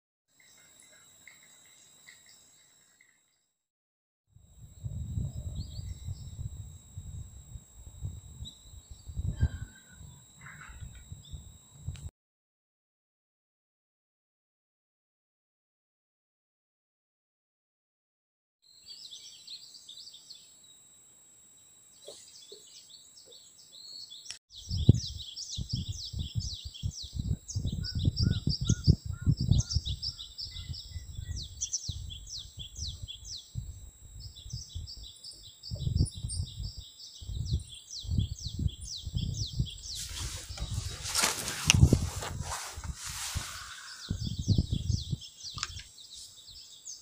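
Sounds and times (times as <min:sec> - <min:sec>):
wind buffeting microphone: 0:04.5 - 0:12.1, 0:24.5 - 0:45.8
songbirds chirping and trilling: 0:08.0 - 0:11.6, 0:18.7 - 0:20.6, 0:21.6 - 0:47.0.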